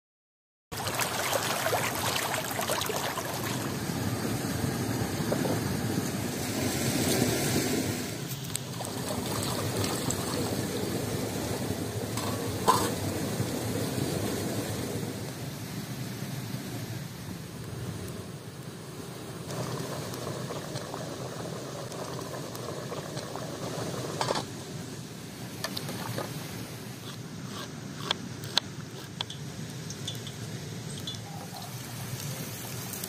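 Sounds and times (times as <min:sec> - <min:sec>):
wood fire crackling: 0:17.4 - 0:33.0.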